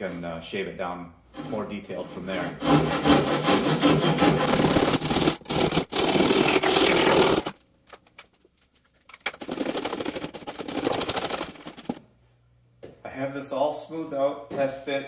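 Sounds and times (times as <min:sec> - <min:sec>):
hand saw sawing wood: 0:01.3 - 0:07.5
block plane shaving wood: 0:01.4 - 0:07.5.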